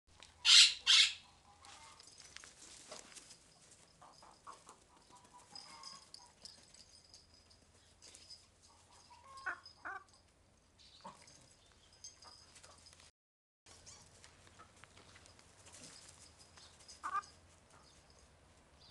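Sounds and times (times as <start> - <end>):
hens squawking: 0.4 - 1.4.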